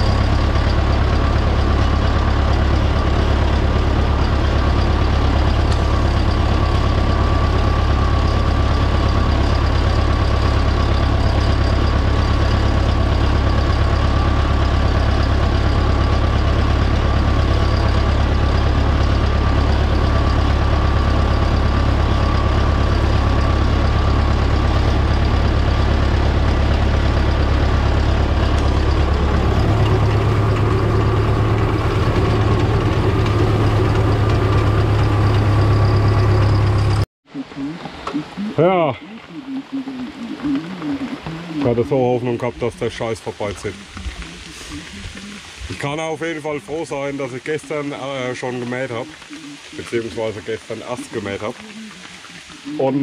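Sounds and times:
tractor diesel engine droning: 0:00.0 - 0:37.1, 0:41.2 - 0:52.2.

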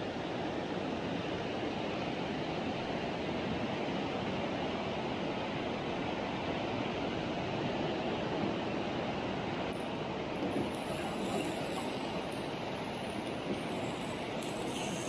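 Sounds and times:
river rushing: 0:09.5 - 0:15.0.

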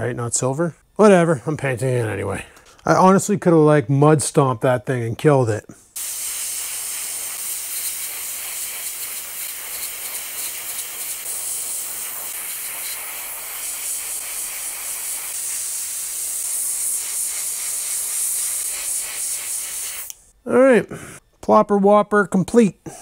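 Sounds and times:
airbrush hissing: 0:05.9 - 0:20.3.

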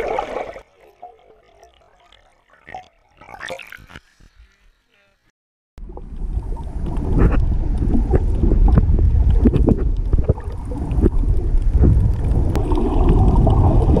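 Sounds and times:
underwater water rumble: 0:05.8 - 0:14.0.

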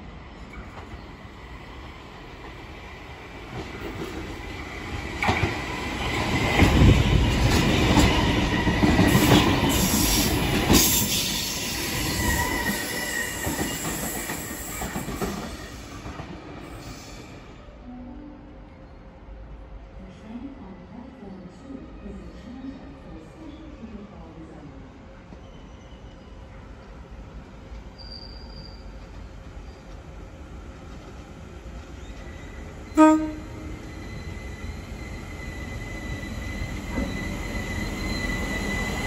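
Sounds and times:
train passing rumble: 0:28.8 - 0:39.0.

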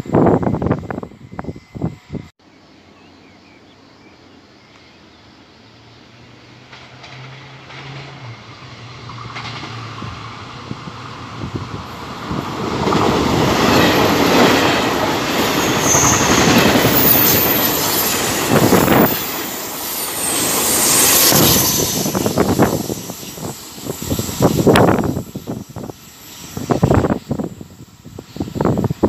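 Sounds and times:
high-pitched squeal: 0:00.0 - 0:02.3, 0:13.0 - 0:29.0
train rumbling past: 0:00.0 - 0:02.3, 0:02.9 - 0:29.0.

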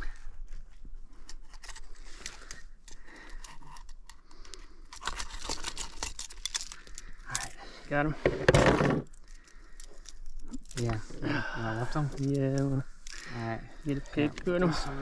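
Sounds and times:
pliers clicking and scraping: 0:01.2 - 0:07.4.

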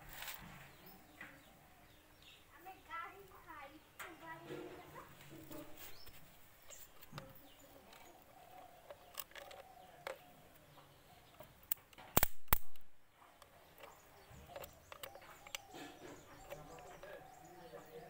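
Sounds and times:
sharp electrical snaps: 0:11.7 - 0:13.0.

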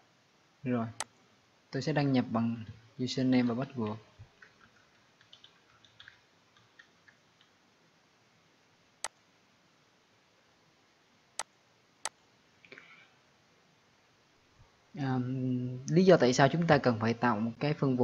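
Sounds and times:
keyboard typing: 0:03.3 - 0:07.5.

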